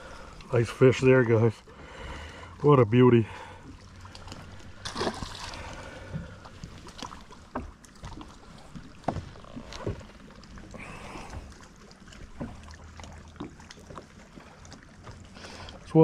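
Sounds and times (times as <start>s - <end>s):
water lapping around hull: 0.0s - 16.0s
fish splashing into water: 3.7s - 15.2s.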